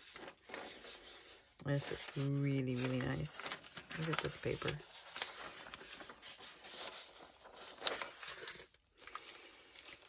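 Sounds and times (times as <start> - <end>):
paper rustling and crackling: 0.0 - 10.0.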